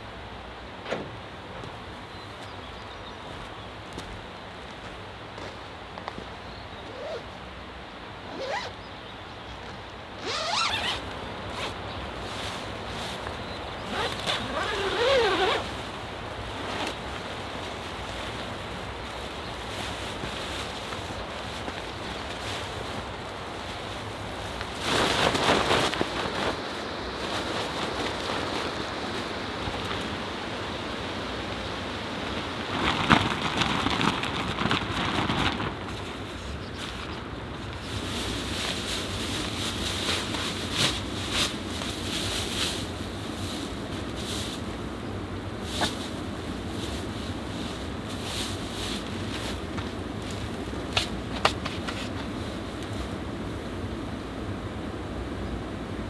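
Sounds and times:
background hiss: 0.0s - 56.0s
tent fabric rustling: 6.9s - 7.2s, 8.3s - 8.7s, 10.2s - 30.3s, 32.1s - 44.7s, 45.5s - 53.7s
tent zipper pulled: 6.9s - 7.2s, 8.3s - 8.8s, 10.2s - 11.8s, 13.9s - 15.7s.

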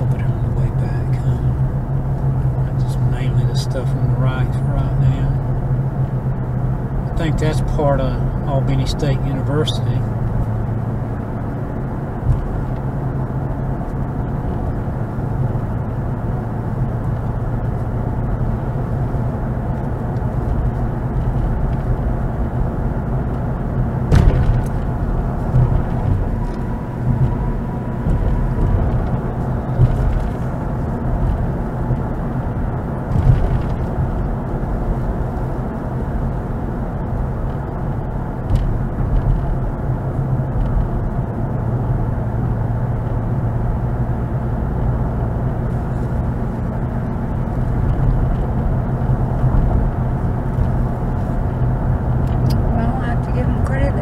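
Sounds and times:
car engine and tyre rumble: 0.0s - 54.0s
sharp knock: 24.1s - 24.8s
soft thumps: 24.1s - 30.4s.

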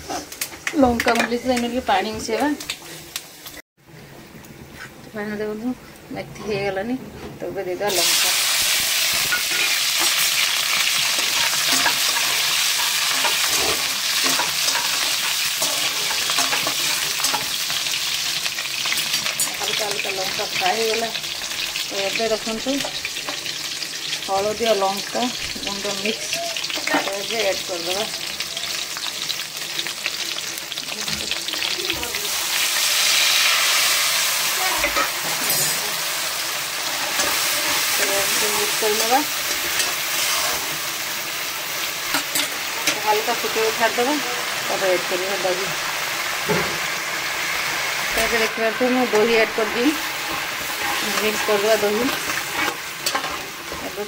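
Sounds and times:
spices sizzling in hot oil: 7.8s - 54.0s
stirring in a pan: 9.2s - 20.8s, 48.2s - 54.0s.

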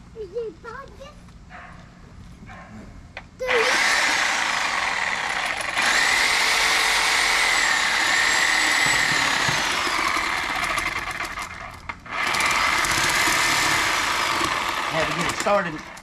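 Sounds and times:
reciprocating saw motor whine: 3.5s - 16.0s.

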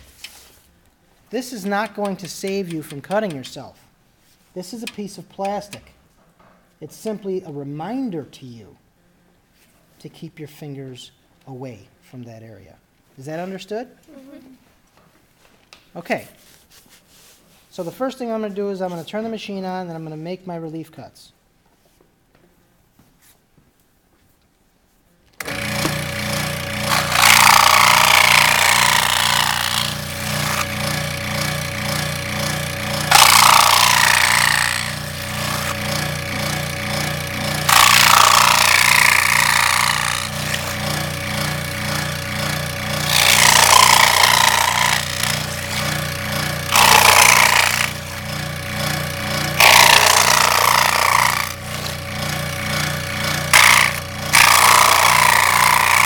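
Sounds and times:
saw blade rasping through cardboard: 25.4s - 56.0s
scroll saw humming: 25.4s - 56.0s.

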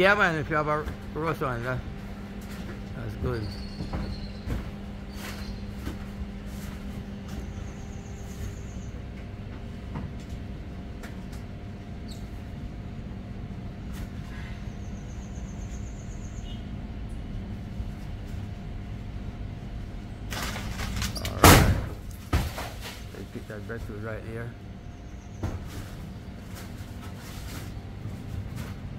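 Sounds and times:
steady low hum: 0.0s - 28.9s
leaves and branches rustling: 20.2s - 24.4s, 25.5s - 28.9s
heavy thud of falling fruit: 20.3s - 23.1s.

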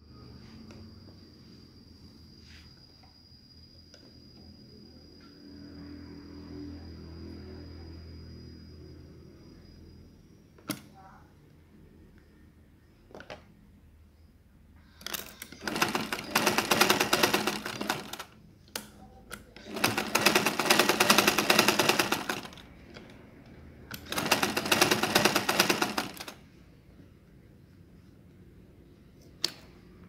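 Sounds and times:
sewing machine stitching: 15.0s - 18.4s, 19.4s - 22.7s, 23.9s - 26.4s.

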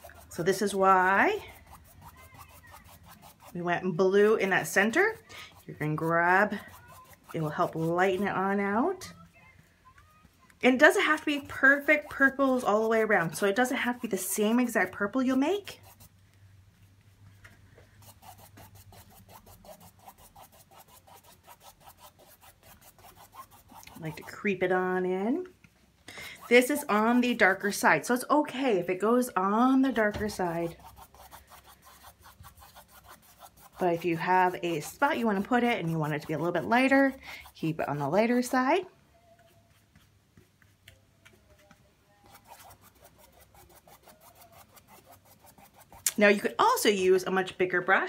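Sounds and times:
paintbrush scrubbing on canvas: 0.0s - 8.8s, 10.7s - 16.2s, 17.9s - 24.6s, 26.4s - 28.0s, 29.6s - 38.7s, 39.4s - 46.6s.

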